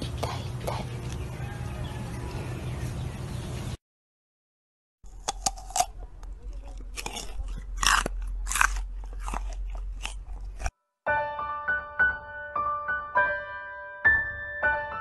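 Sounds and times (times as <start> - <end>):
deer chewing: 5.1 - 10.7.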